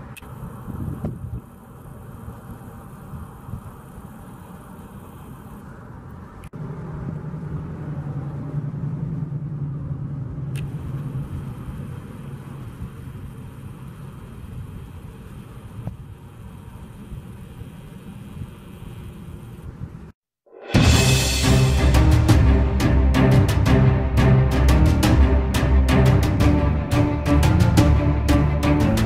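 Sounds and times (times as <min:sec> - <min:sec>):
vehicle engine running: 0:00.0 - 0:19.9
road traffic noise: 0:00.0 - 0:20.2, 0:20.8 - 0:29.0.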